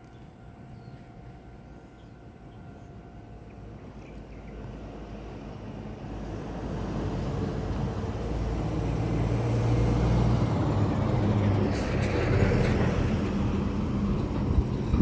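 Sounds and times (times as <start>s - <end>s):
heavy vehicle engine passing: 4.4s - 15.0s.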